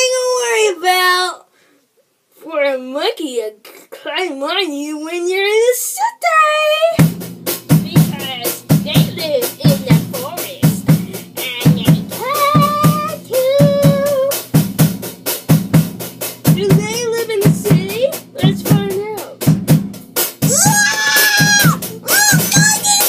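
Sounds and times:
drum kit beat: 0:06.8 - 0:23.0.

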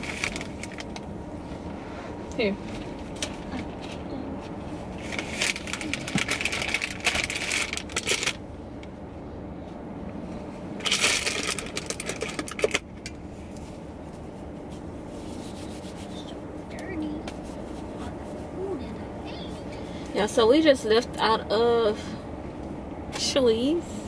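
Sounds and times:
crinkling and rustling: 0:00.0 - 0:01.1, 0:02.6 - 0:08.4, 0:10.8 - 0:16.0.

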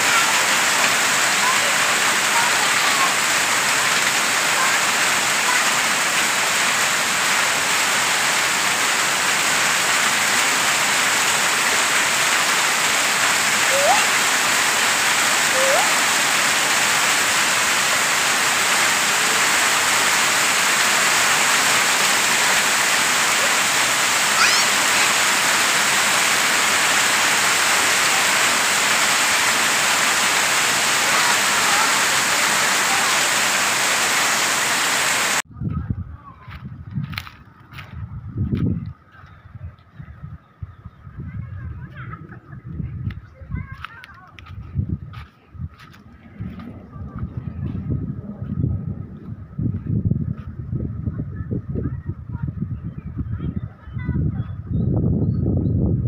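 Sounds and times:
heavy rain on concrete: 0:00.0 - 0:35.5.

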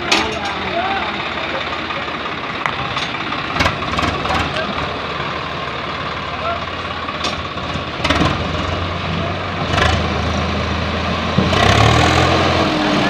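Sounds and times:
tractor diesel engine running: 0:00.0 - 0:13.0.

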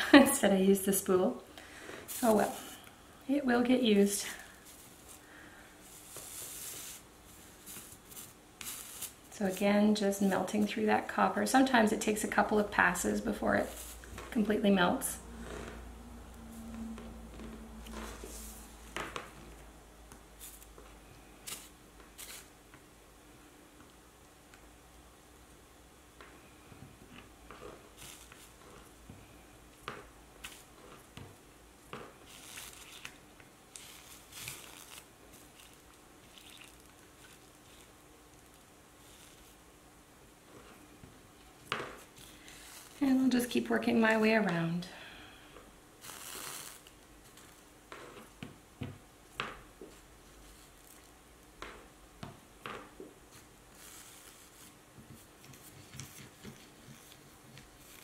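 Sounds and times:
solder sizzling and crackling: 0:01.7 - 0:23.0, 0:23.7 - 0:44.8, 0:45.9 - 0:48.5, 0:49.4 - 0:58.0
flux hissing under soldering iron: 0:05.8 - 0:09.6, 0:46.0 - 0:46.9.

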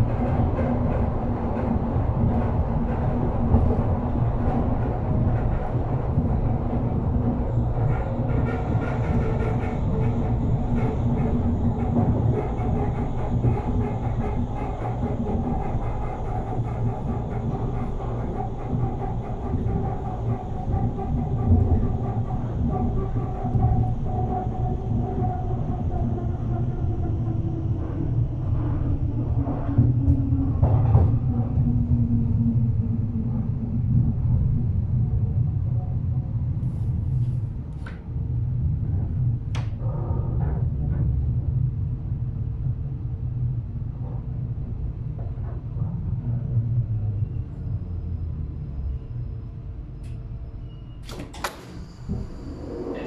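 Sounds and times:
electric train rumble and whine: 0:00.0 - 0:53.0
train brakes squeaking: 0:50.0 - 0:53.0.

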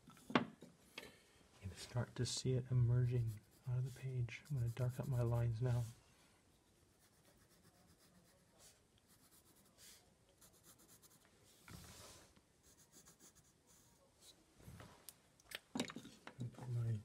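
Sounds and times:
hand rubbing card: 0:03.1 - 0:05.9
pencil scratching on card: 0:03.1 - 0:05.9, 0:06.7 - 0:11.3, 0:12.6 - 0:14.0.

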